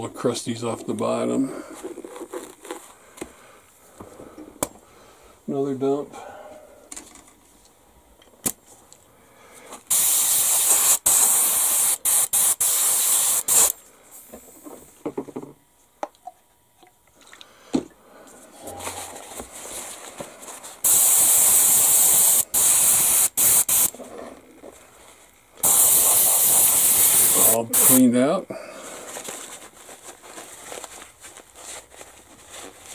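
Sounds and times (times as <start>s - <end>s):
airbrush hissing in spurts: 9.9s - 13.7s, 20.8s - 23.9s, 25.6s - 28.0s.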